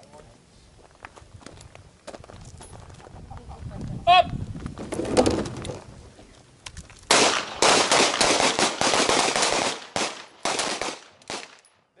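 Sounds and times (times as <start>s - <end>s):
rapid gunfire: 7.1s - 11.4s.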